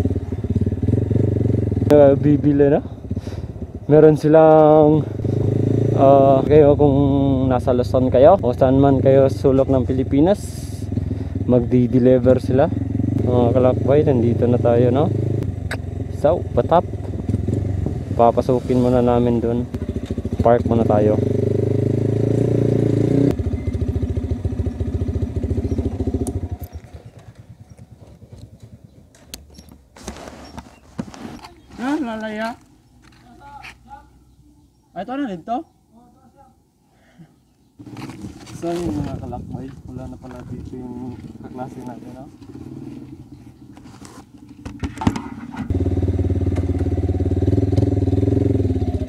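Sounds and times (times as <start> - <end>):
motorcycle engine idling: 0.0 - 22.4, 23.3 - 29.7, 39.6 - 45.0, 45.6 - 49.0
knocks and clicks handling motorcycle: 43.6 - 45.7.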